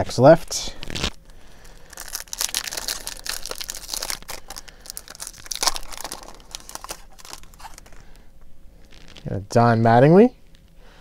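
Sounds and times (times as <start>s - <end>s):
card pack wrapper tearing: 0.7s - 8.1s.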